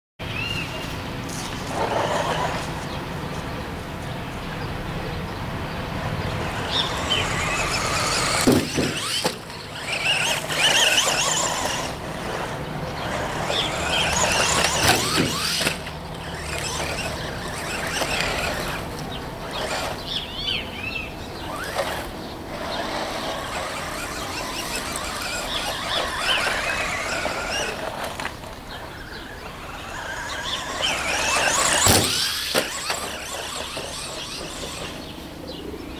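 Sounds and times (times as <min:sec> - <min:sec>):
electric motor whining: 0:06.2 - 0:35.4
sharp knocks: 0:08.4 - 0:09.4.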